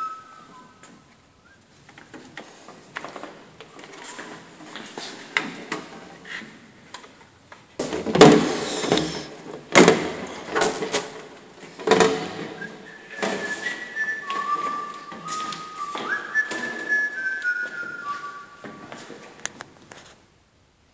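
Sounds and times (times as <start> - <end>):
person whistling a tune: 0.0 - 1.6, 12.5 - 19.1
plastic panels knocking and rattling: 7.8 - 17.2.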